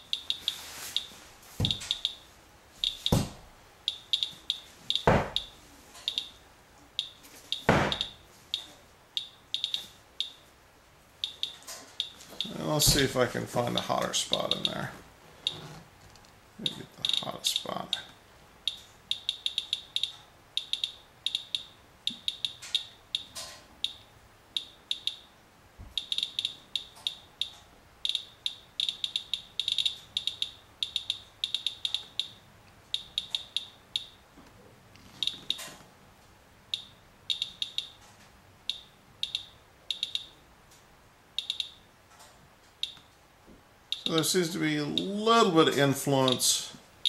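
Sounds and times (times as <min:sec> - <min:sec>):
geiger counter chirping: 0:00.0 - 0:10.4, 0:11.2 - 0:12.6, 0:16.6 - 0:25.3, 0:26.0 - 0:34.2, 0:35.2 - 0:35.7, 0:36.7 - 0:38.0, 0:38.6 - 0:40.4, 0:41.4 - 0:41.9, 0:42.8 - 0:43.0, 0:43.9 - 0:44.3.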